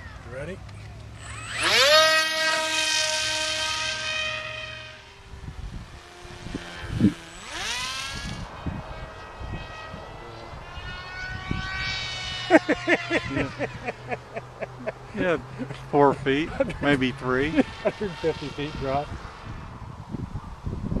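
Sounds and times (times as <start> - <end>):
electric motor and propeller whine: 0.0 - 21.0
wind thumps on microphone: 19.1 - 21.0.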